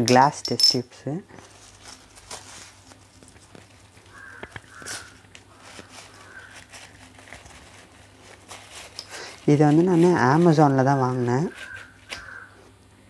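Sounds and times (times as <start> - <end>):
plastic wrapping crinkling: 1.4 - 12.4
crow cawing: 4.1 - 6.7, 11.5 - 12.7.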